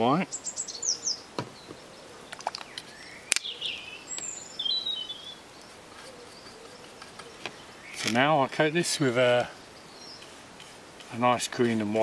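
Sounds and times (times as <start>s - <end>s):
birds chirping: 0.0s - 12.0s
sharp click: 2.3s - 3.5s.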